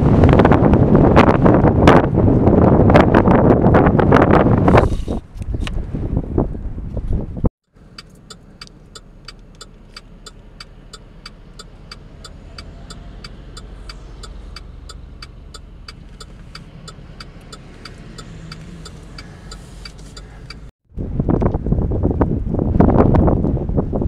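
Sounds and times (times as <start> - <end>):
vehicle engines rumbling: 3.8 - 22.4
indicator flasher ticking: 8.0 - 20.7.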